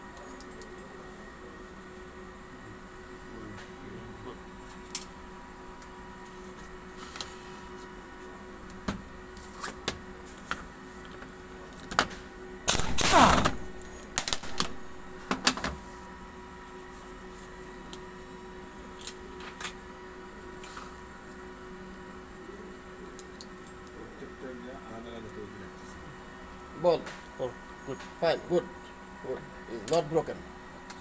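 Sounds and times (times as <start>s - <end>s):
pneumatic impact wrench burst: 12.7s - 13.6s.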